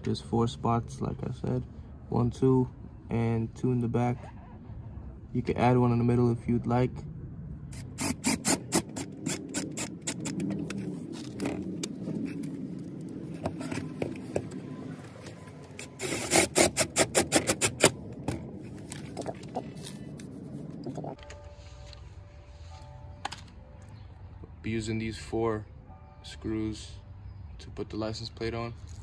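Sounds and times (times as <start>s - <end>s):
screwdriver scraping grind: 7.8s - 12.6s, 15.8s - 18.4s.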